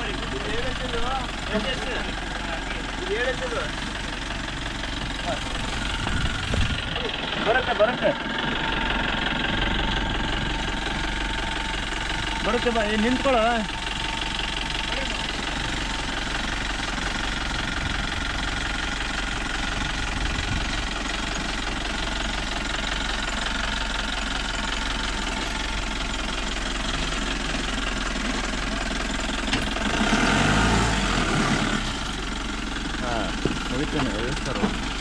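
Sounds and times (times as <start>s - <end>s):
car engine revving: 29.6s - 35.0s.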